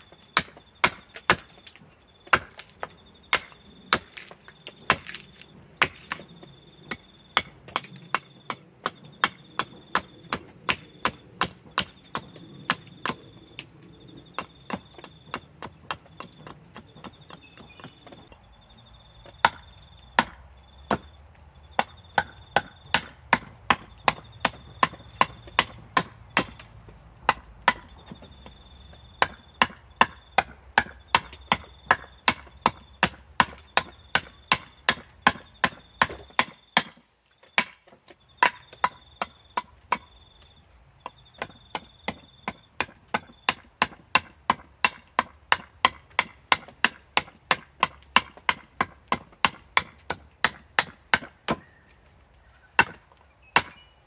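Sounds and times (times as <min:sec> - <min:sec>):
axe chopping wood: 0:00.0 - 0:18.3, 0:19.2 - 0:21.2, 0:21.8 - 0:28.6, 0:29.2 - 0:40.2, 0:41.0 - 0:52.0, 0:52.8 - 0:53.8.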